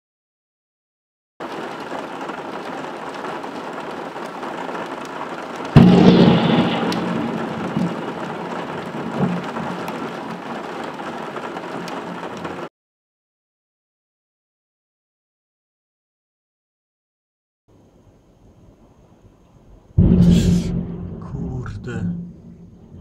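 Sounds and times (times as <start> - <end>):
heavy rain: 1.4 - 12.7, 19.8 - 23.0
thunderclap: 5.6 - 12.7, 19.8 - 23.0.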